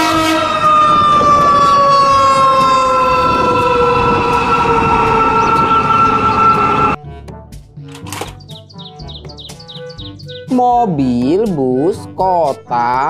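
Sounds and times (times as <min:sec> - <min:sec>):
fire engine siren: 0:00.0 - 0:07.0.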